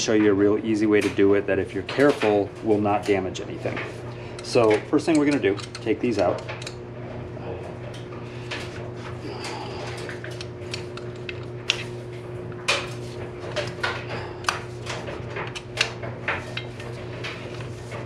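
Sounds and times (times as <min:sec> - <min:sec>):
steady low hum: 0:00.0 - 0:18.0
wrench clicking on metal: 0:05.1 - 0:06.7.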